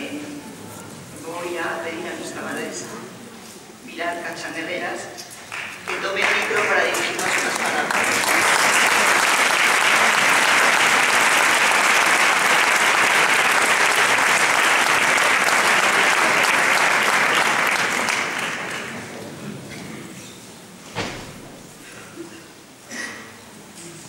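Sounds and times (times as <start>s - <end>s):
audience applauding: 5.4s - 19.2s.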